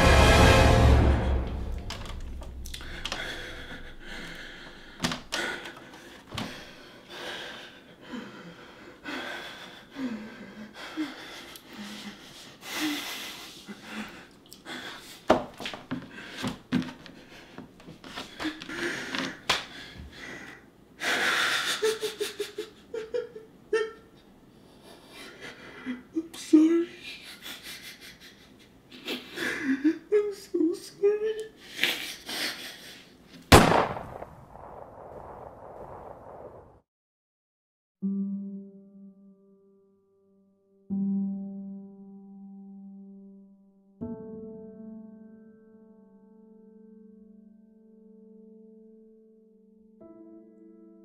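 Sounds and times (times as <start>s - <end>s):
man breathing heavily: 2.5s - 22.1s, 24.5s - 26.1s.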